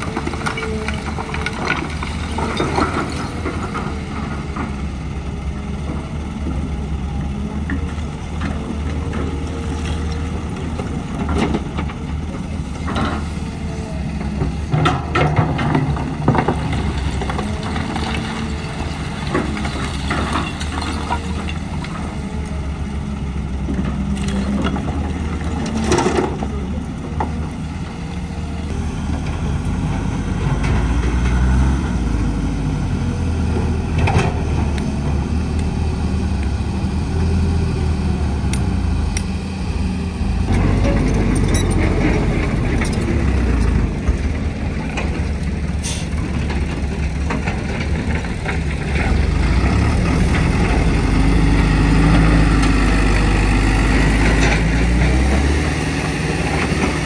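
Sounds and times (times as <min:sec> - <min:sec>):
excavator diesel engine: 0:00.0 - 0:57.0.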